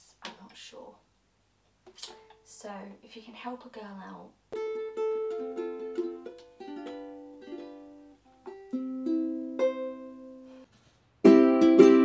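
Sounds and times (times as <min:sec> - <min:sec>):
ukulele chords strummed: 0:04.6 - 0:10.6, 0:11.2 - 0:12.0
ukulele notes plucked: 0:04.6 - 0:10.6, 0:11.2 - 0:12.0.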